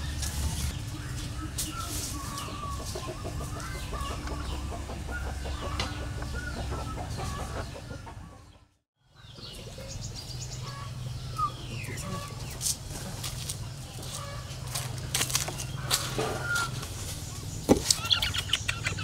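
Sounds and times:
small birds chirping: 0:00.0 - 0:19.0
fowl clucking: 0:01.5 - 0:08.6, 0:14.0 - 0:16.9.

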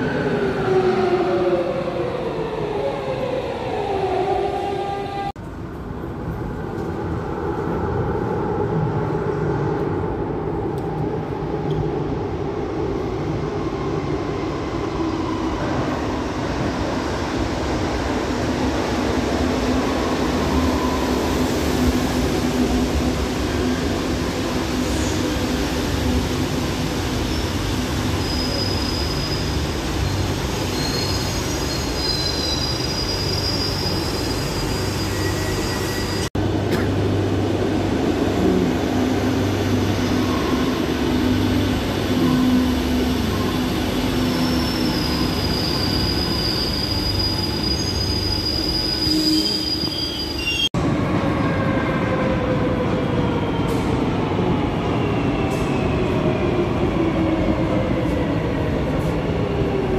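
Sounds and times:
high wheel squeal: 0:28.1 - 0:36.3, 0:43.3 - 0:50.7.

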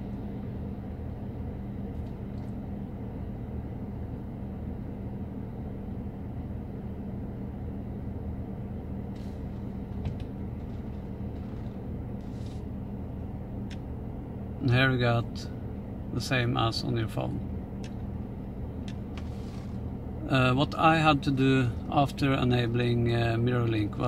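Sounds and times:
car engine idling: 0:08.8 - 0:24.0.

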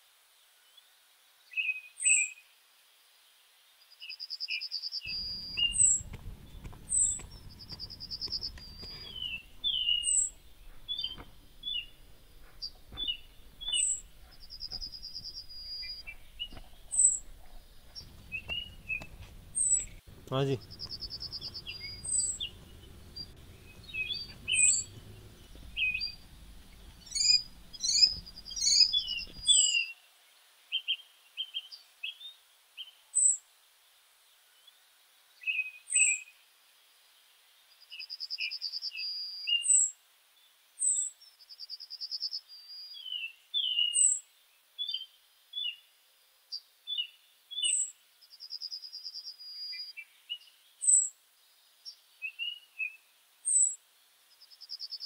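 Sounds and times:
birds singing: 0:05.1 - 0:29.7.

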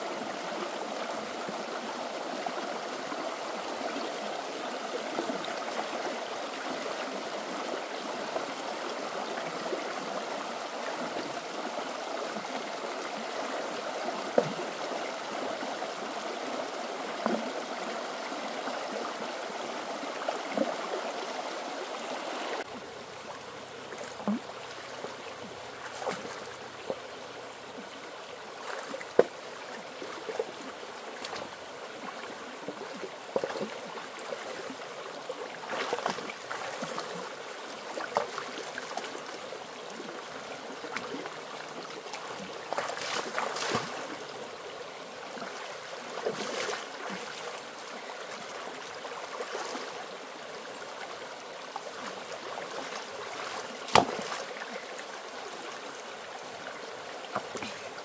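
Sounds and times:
stream water flowing: 0:00.0 - 0:58.0
small water splashes: 0:22.2 - 0:44.6, 0:45.2 - 0:50.1, 0:51.7 - 0:58.0.

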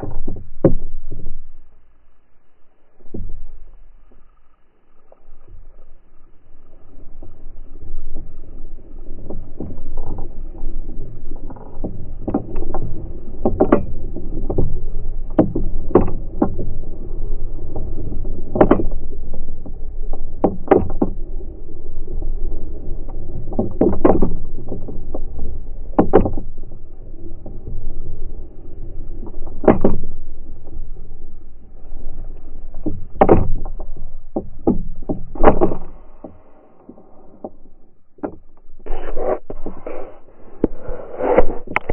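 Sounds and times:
deep wind rumble on microphone: 0:05.4 - 0:41.9
low thumps: 0:22.1 - 0:41.9.

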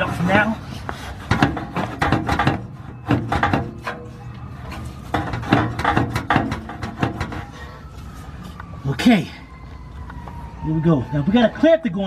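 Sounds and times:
exhaust pipe clunking and scraping: 0:00.0 - 0:08.8.

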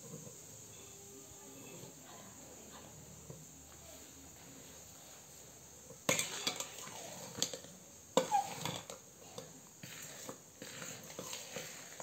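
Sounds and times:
metal spoon scraping steel pot: 0:06.1 - 0:07.6, 0:08.2 - 0:12.0.

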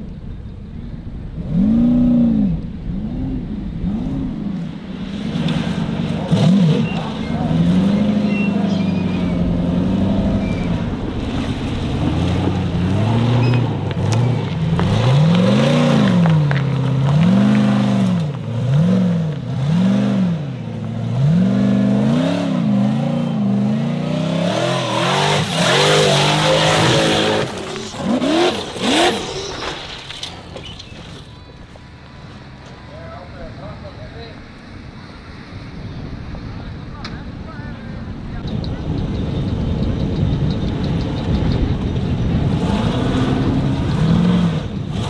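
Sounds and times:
buggy engine revving hard: 0:01.4 - 0:29.7, 0:39.1 - 0:45.0.

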